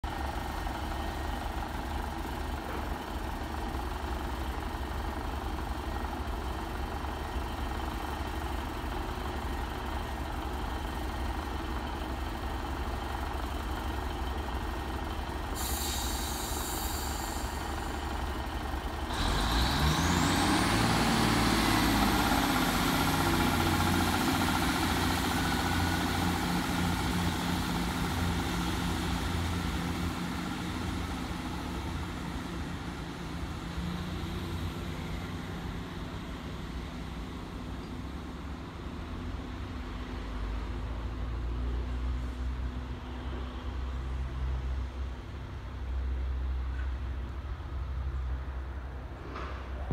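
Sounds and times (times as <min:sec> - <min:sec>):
train diesel engines running: 0:00.0 - 0:49.9
high hiss: 0:15.6 - 0:18.1.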